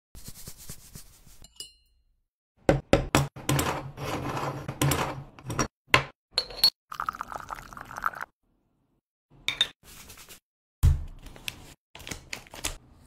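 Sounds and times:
metal scraping and rasping: 0:03.5 - 0:05.4.

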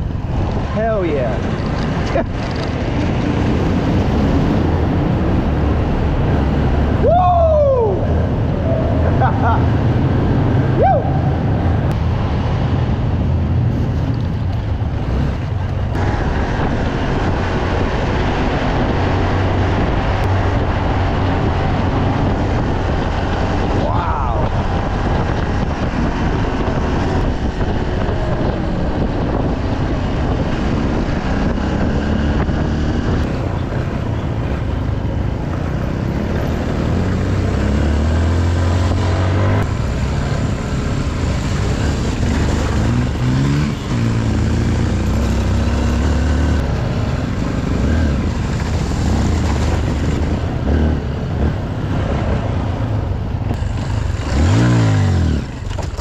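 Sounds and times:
motorcycle engine revving: 0:24.6 - 0:56.0.

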